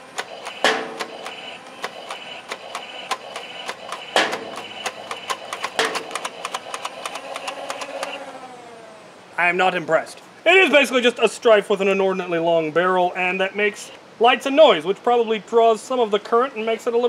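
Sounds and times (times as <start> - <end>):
toy darts firing clicks: 0.0 - 8.2
flywheel motors whining: 0.0 - 9.3
loud knocks: 0.5 - 1.3, 4.0 - 4.8, 5.8 - 6.3.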